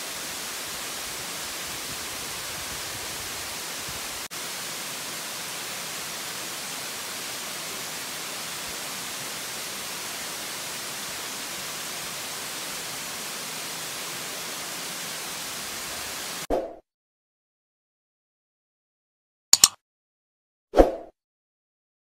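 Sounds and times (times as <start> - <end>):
waterfall hiss: 0.0 - 16.5.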